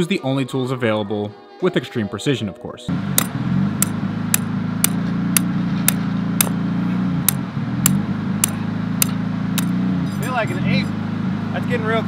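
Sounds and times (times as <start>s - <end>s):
low hum: 2.9s - 11.5s
hammer striking metal: 3.1s - 6.6s, 7.2s - 9.8s.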